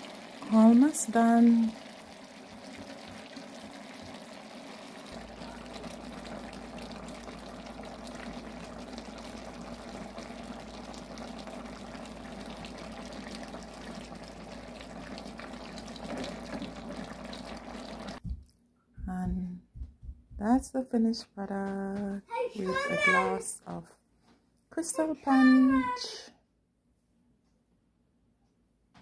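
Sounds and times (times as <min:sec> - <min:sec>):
sauce bubbling and sizzling: 0:00.0 - 0:18.2.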